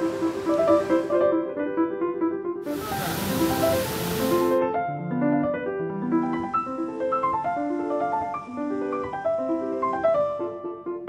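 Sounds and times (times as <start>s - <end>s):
hiss: 0.0s - 1.3s, 2.6s - 4.6s
piano single notes: 0.0s - 10.8s.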